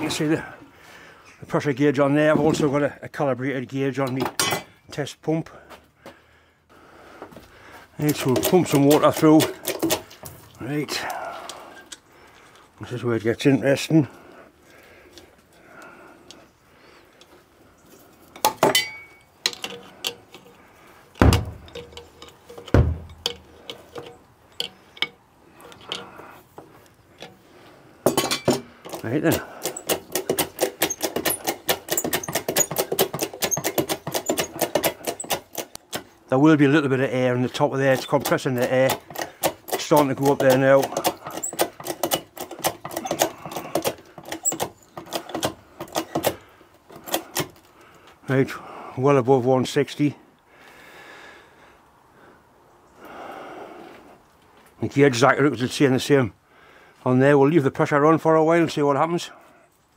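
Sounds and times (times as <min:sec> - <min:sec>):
hand pump lever clicking: 0:08.0 - 0:10.3, 0:18.4 - 0:26.2, 0:28.1 - 0:36.1, 0:37.8 - 0:47.7
metal fittings clinking: 0:18.4 - 0:20.6, 0:21.4 - 0:26.2
heavy metal knocks: 0:21.2 - 0:22.0, 0:22.7 - 0:23.4.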